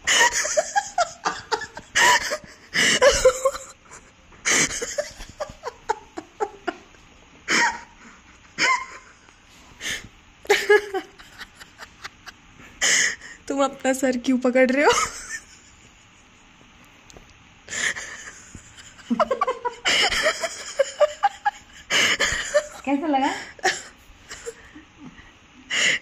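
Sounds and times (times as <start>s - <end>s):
people laughing: 0.0s - 7.9s, 10.5s - 12.4s, 17.7s - 23.0s
laughter through phone speaker: 0.0s - 9.2s, 10.5s - 12.4s, 17.7s - 23.0s.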